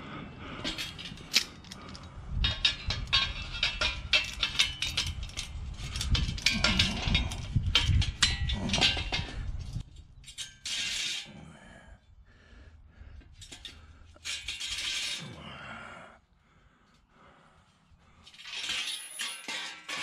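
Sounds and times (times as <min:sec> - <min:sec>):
metal clinking and rattling: 0:00.6 - 0:11.3, 0:13.4 - 0:15.4, 0:18.2 - 0:20.0.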